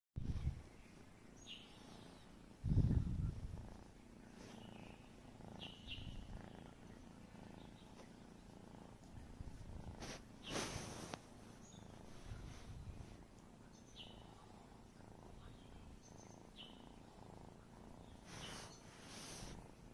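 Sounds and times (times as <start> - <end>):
kitten purring: 0.2 - 19.9.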